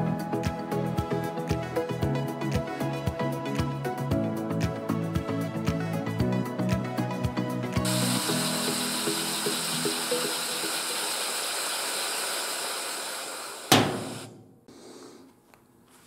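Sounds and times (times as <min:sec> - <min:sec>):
background music: 0:00.0 - 0:10.9
compressed air hissing: 0:07.8 - 0:15.3
sharp knock: 0:13.7 - 0:14.7.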